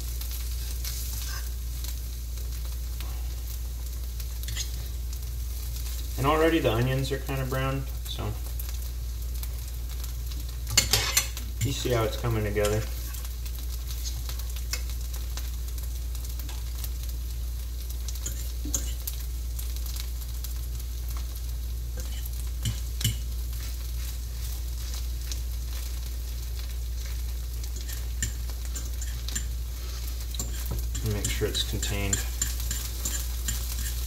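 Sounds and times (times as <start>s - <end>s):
patty sizzling in a pan: 0.0s - 34.0s
steady low hum: 0.0s - 34.0s.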